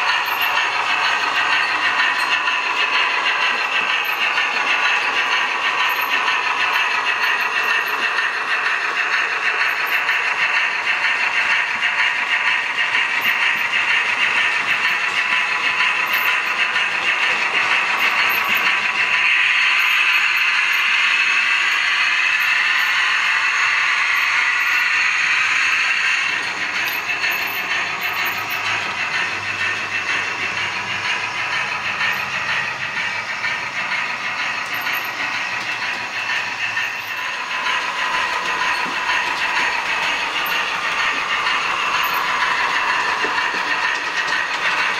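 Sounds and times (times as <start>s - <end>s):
model trains whirring on track: 0.0s - 44.9s.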